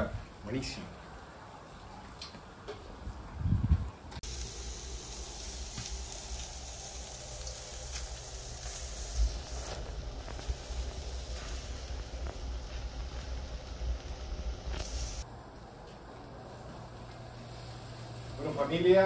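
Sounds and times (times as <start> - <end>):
low rumble: 3.4 - 15.2
steaks sizzling on a grill: 4.2 - 15.2, 17.4 - 19.0
embers crackling: 4.2 - 19.0.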